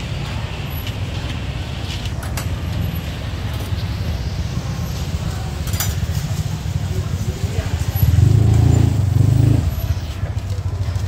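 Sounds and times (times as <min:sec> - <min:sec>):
faint voices: 0:00.0 - 0:11.0
passing traffic rumble: 0:00.0 - 0:11.0
sharp clicks and clatters: 0:05.6 - 0:06.5.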